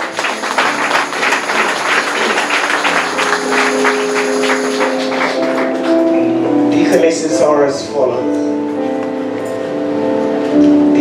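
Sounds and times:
congregation clapping: 0:00.0 - 0:06.3
keyboard sustained chords: 0:00.0 - 0:11.0.

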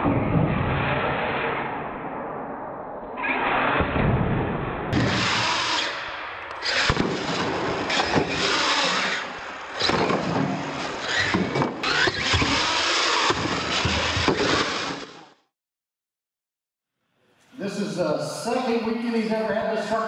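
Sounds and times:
toy truck motors whining: 0:05.1 - 0:06.0, 0:06.6 - 0:07.0, 0:07.8 - 0:10.2, 0:10.8 - 0:15.4.

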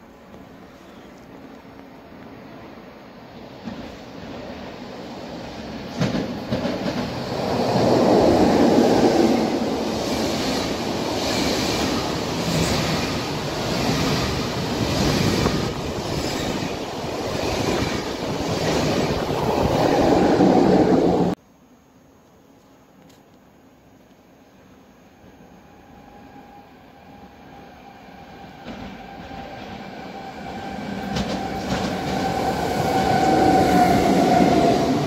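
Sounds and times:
passenger train passing at speed: 0:00.0 - 0:21.4, 0:24.4 - 0:35.0
train wheels clacking over rail joints: 0:05.9 - 0:07.2.

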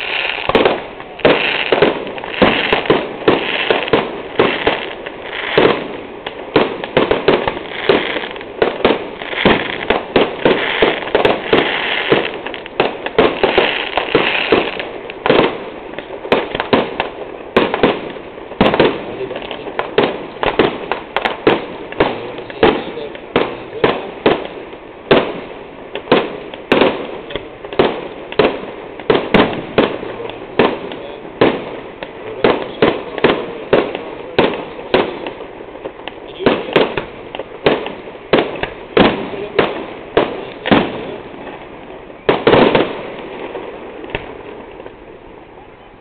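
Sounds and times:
fireworks bangs: 0:00.0 - 0:46.0.

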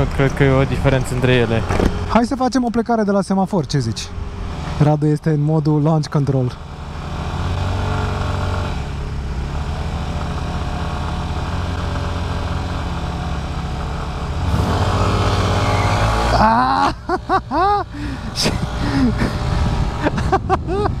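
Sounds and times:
scooter engine idling and revving: 0:00.0 - 0:02.3, 0:04.1 - 0:21.0.

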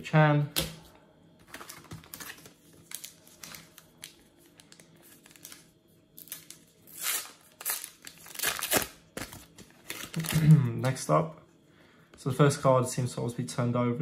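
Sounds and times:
card packet wrapper rustling and tearing: 0:01.4 - 0:11.0.

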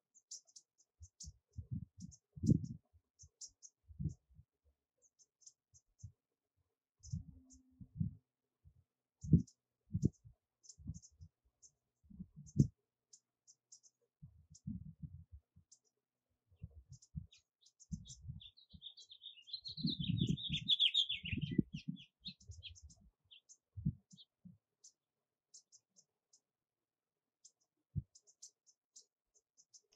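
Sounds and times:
small birds calling: 0:00.0 - 0:04.2, 0:16.6 - 0:26.4
soft low thumps and clicks: 0:01.0 - 0:04.4, 0:07.0 - 0:08.2, 0:09.2 - 0:11.3, 0:12.1 - 0:12.8, 0:13.7 - 0:15.9, 0:16.6 - 0:24.6
rapid bird twittering: 0:09.2 - 0:11.8, 0:16.7 - 0:26.0.

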